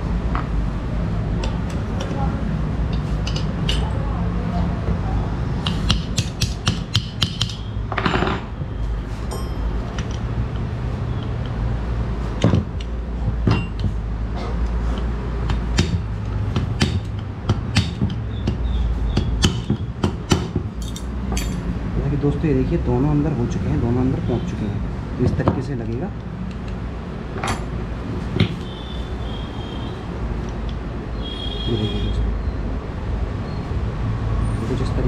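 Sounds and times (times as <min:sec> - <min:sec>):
metal pins clicking and clinking: 0:02.9 - 0:04.0, 0:20.8 - 0:21.7, 0:26.5 - 0:28.7.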